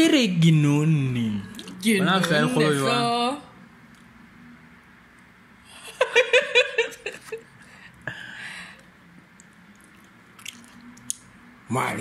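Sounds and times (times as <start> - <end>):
person laughing: 5.8 - 7.4.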